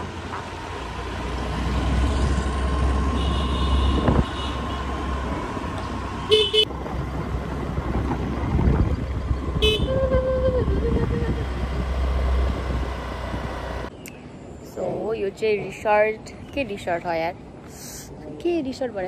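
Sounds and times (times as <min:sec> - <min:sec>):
wind and road noise: 0:00.0 - 0:19.0
vehicle horn toots: 0:03.1 - 0:04.8, 0:06.3 - 0:06.7, 0:09.6 - 0:10.0.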